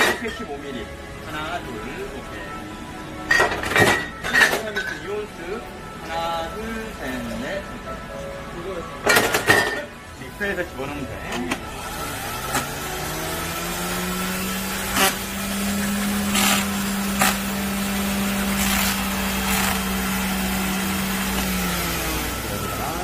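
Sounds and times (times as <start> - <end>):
drink mixer motor hum: 11.5 - 23.0.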